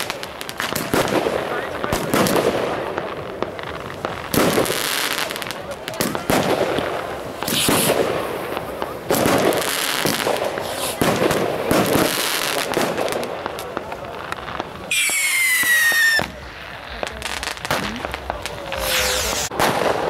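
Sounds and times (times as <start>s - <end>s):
firework pops: 0.0s - 20.0s
firework shells crackling: 0.0s - 20.0s
firework whistle: 14.9s - 16.4s, 18.7s - 20.0s.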